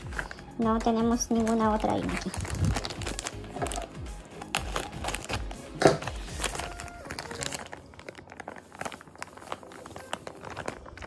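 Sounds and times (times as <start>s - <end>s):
scissors snipping bag: 0.0s - 7.8s
plastic bag crinkling: 0.0s - 11.0s.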